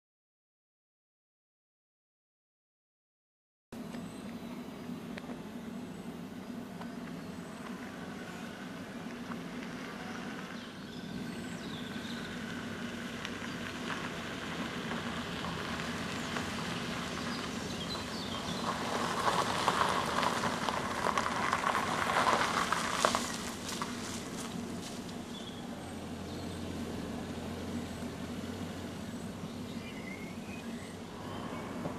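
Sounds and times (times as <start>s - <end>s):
car engine running: 3.8s - 31.9s
tyres crunching on gravel: 6.8s - 31.9s.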